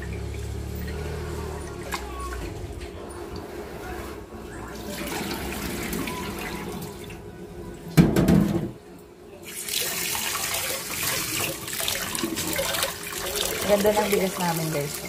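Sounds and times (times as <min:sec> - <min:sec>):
water pouring into a steel sink: 0:09.4 - 0:15.0.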